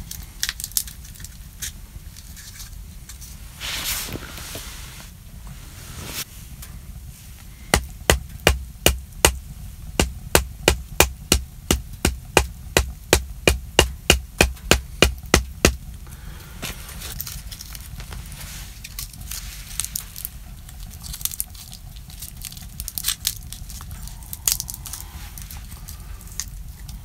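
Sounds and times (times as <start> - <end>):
knife struck splitting wood: 10.0 - 15.8.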